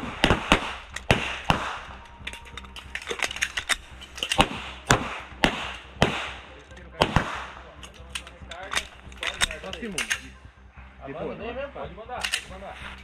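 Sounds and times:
pistol shots: 0:00.0 - 0:02.0, 0:03.0 - 0:07.6.

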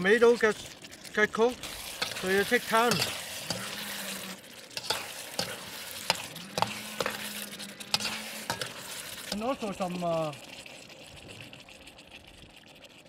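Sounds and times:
sauce sizzling: 0:00.0 - 0:13.0
spatula scraping a wok: 0:01.6 - 0:09.4.

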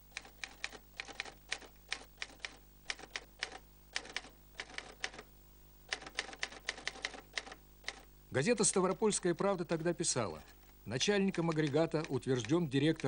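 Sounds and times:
mechanical typewriter typing: 0:00.1 - 0:05.3, 0:05.9 - 0:09.0, 0:11.0 - 0:13.0.

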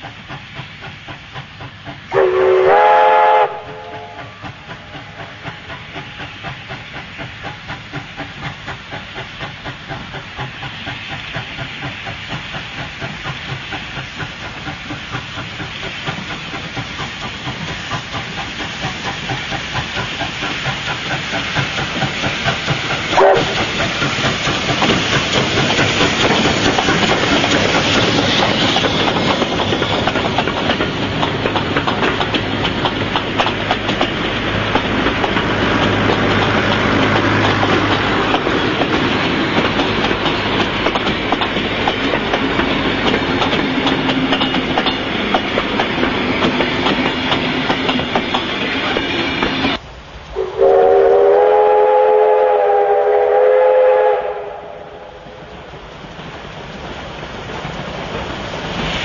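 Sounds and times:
train passing: 0:00.0 - 0:59.0
steam whistle chord: 0:02.1 - 0:04.4, 0:23.2 - 0:23.6, 0:50.4 - 0:55.3.

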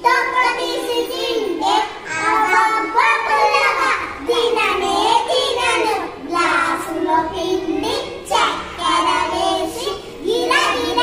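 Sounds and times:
girls singing together: 0:00.0 - 0:11.0.

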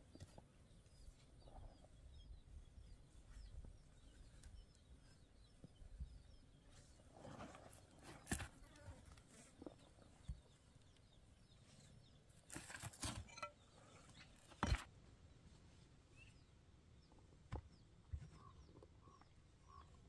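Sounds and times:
mud bricks knocking and scraping: 0:12.5 - 0:13.6.

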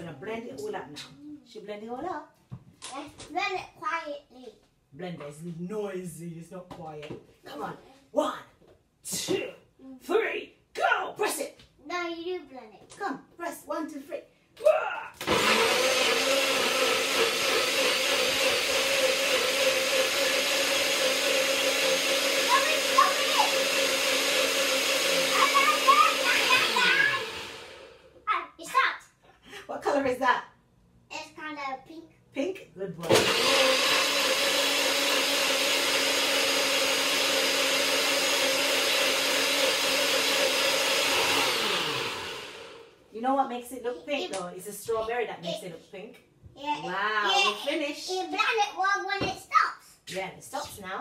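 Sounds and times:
blender motor whining: 0:15.2 - 0:28.1, 0:33.0 - 0:43.0.

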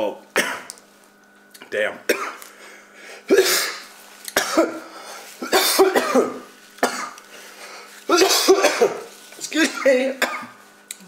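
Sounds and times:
man coughing: 0:00.4 - 0:00.7, 0:02.1 - 0:02.4, 0:03.2 - 0:07.2, 0:08.1 - 0:10.6.

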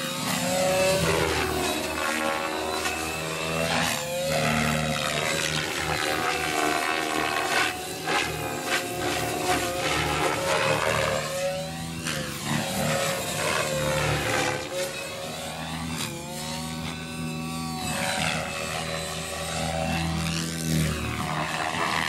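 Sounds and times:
model helicopter rotor whine: 0:00.0 - 0:22.0.

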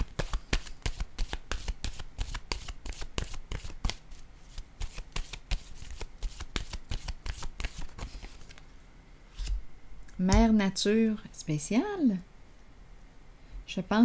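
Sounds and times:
cards being shuffled: 0:00.0 - 0:08.7.

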